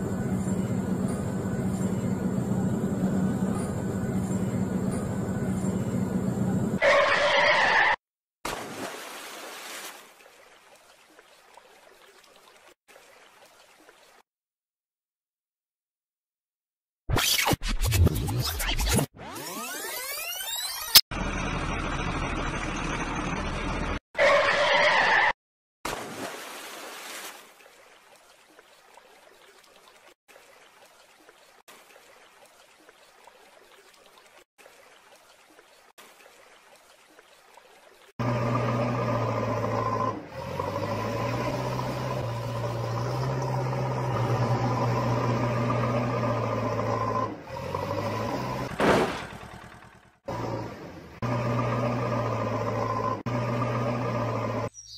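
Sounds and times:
engine drone: 0:00.0 - 0:08.0, 0:20.8 - 0:24.6, 0:38.2 - 0:54.8
toy truck splashing into mud: 0:48.6 - 0:50.0.

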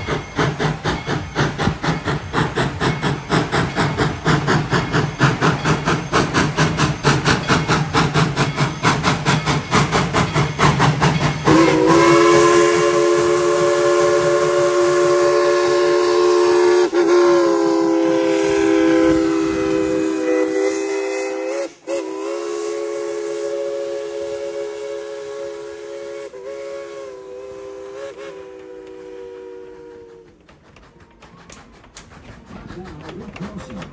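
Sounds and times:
steam locomotive chuffing: 0:00.0 - 0:33.9
steam whistle blast: 0:11.4 - 0:30.4.

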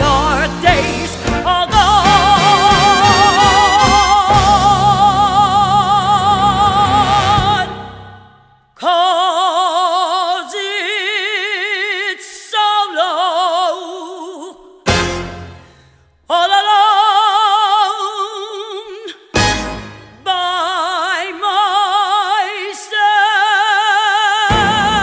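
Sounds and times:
big band playing: 0:00.0 - 0:08.1, 0:14.9 - 0:15.8, 0:19.4 - 0:20.3, 0:24.5 - 0:25.0
woman singing with vibrato: 0:00.0 - 0:14.7, 0:16.3 - 0:19.3, 0:20.2 - 0:25.0.

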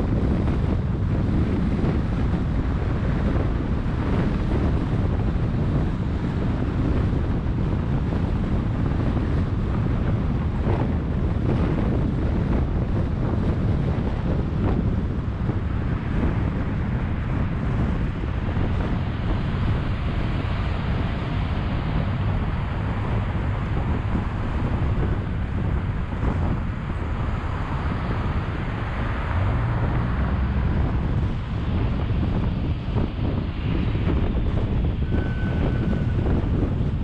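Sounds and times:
road traffic: 0:00.0 - 0:37.0
wind buffeting microphone: 0:00.0 - 0:37.0.

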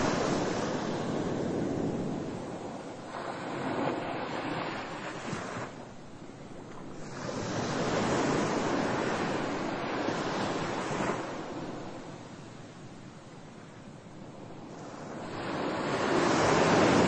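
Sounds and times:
waves washing in: 0:00.0 - 0:17.0.

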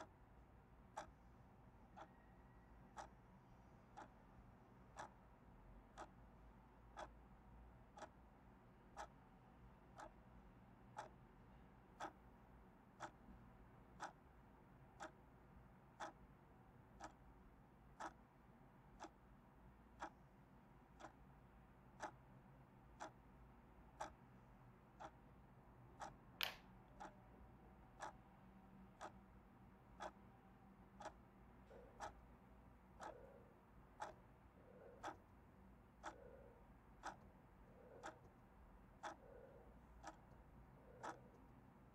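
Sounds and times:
faint clock ticking: 0:00.0 - 0:41.9
sharp click: 0:26.4 - 0:26.7.

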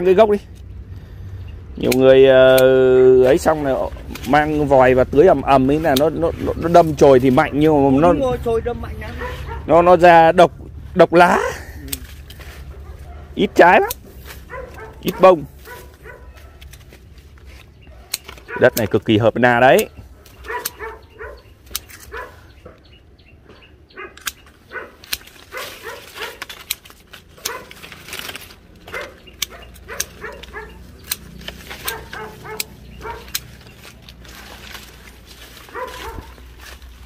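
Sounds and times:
pruning shears snipping: 0:01.8 - 0:09.6, 0:11.5 - 0:22.8, 0:24.0 - 0:37.0
dog barking: 0:09.1 - 0:09.8, 0:12.6 - 0:16.7, 0:17.8 - 0:18.9, 0:20.1 - 0:21.5, 0:22.1 - 0:22.9, 0:23.9 - 0:26.5, 0:27.4 - 0:27.8, 0:28.9 - 0:30.8, 0:31.8 - 0:33.4, 0:35.7 - 0:36.5.

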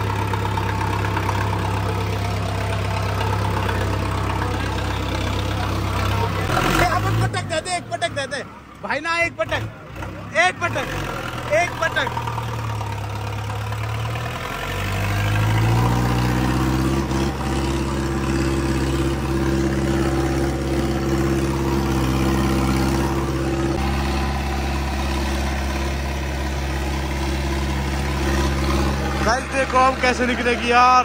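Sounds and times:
diesel tractor engine revving: 0:00.0 - 0:31.0.

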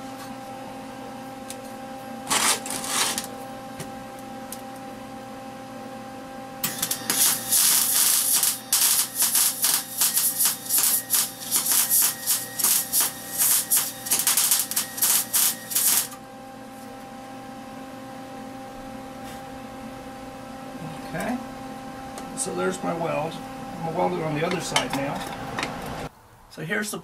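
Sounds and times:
steady low hum: 0:00.0 - 0:26.6
welding arc crackling: 0:02.2 - 0:03.3, 0:06.6 - 0:16.2.

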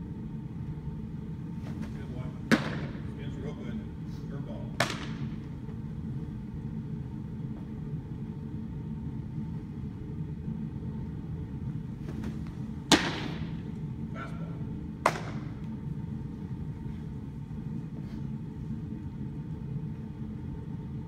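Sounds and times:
steady low hum: 0:00.0 - 0:21.0
baseball popping into mitt: 0:02.5 - 0:03.1, 0:04.8 - 0:05.4, 0:12.1 - 0:13.6, 0:15.0 - 0:15.6.

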